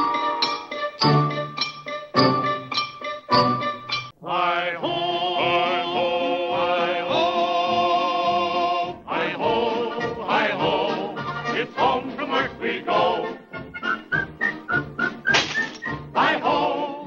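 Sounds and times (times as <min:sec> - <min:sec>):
intro music: 0:00.0 - 0:04.2.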